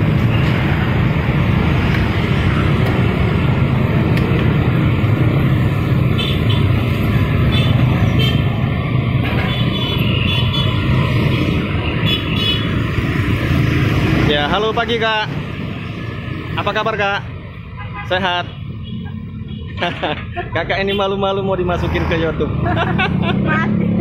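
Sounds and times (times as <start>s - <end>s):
road traffic noise: 0.0s - 24.0s.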